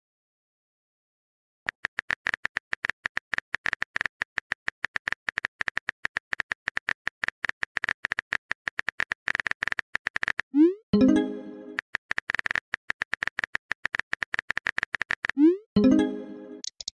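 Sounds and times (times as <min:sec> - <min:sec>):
phone keyboard typing clicks: 0:01.7 - 0:10.5, 0:11.7 - 0:15.4, 0:16.6 - 0:16.9.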